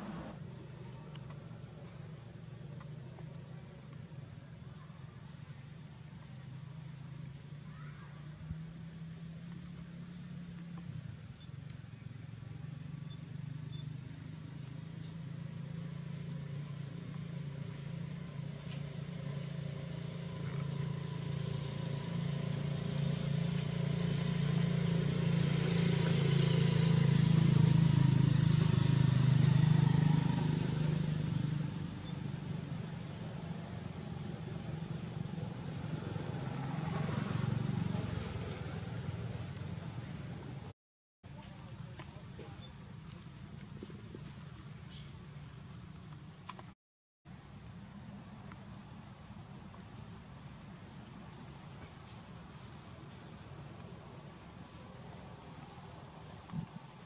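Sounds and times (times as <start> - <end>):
thin high whine: 0.0 - 0.5, 15.8 - 40.7, 41.3 - 57.0
vehicle engine passing by: 0.0 - 0.9, 12.6 - 40.7.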